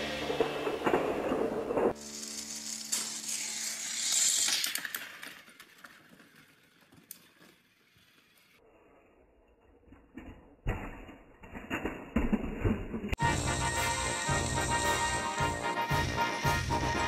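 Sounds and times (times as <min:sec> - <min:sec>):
background music: 0:00.0 - 0:02.8, 0:13.2 - 0:17.0
toy train whirring on track: 0:02.0 - 0:08.6.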